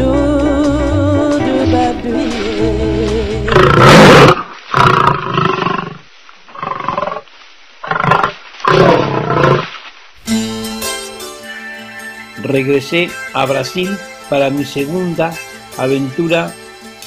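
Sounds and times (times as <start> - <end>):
lion roaring: 3.5 - 7.2, 7.8 - 9.7.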